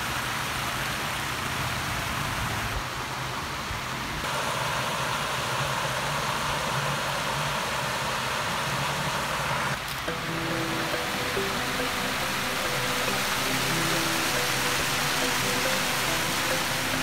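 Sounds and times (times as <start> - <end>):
water rushing along canal: 0.0 - 17.0.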